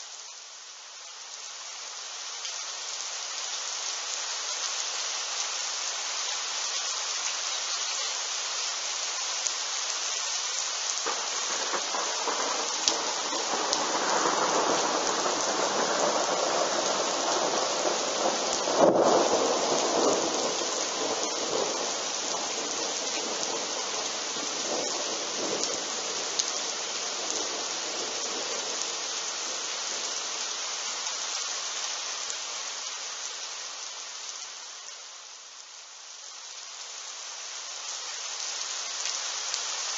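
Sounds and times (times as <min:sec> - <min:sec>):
heavy rain: 0:00.0 - 0:39.9
thunder rumbling: 0:11.0 - 0:21.9.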